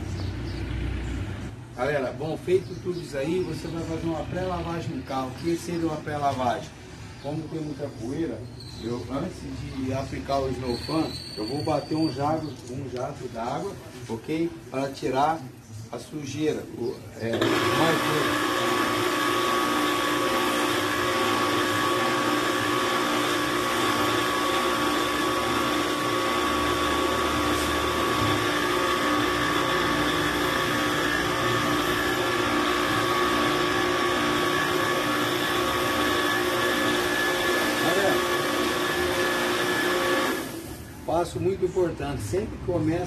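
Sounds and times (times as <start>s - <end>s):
pressure washer motor whine: 17.3s - 41.1s.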